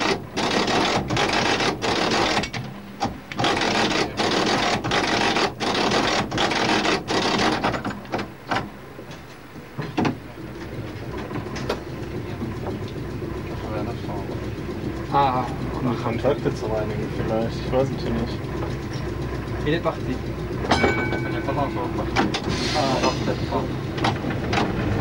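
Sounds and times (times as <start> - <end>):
tram rattling on track: 0.0 - 25.0.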